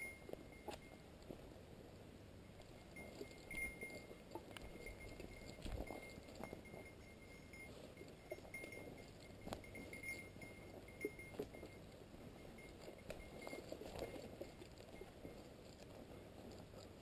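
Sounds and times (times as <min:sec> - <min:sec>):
dog collar bell tinkling: 0:00.0 - 0:01.0, 0:02.9 - 0:11.8, 0:12.4 - 0:14.6.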